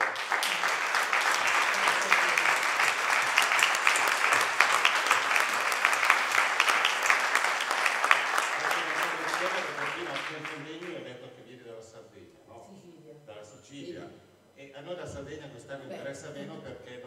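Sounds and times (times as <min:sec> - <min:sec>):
audience applause: 0:00.0 - 0:11.0.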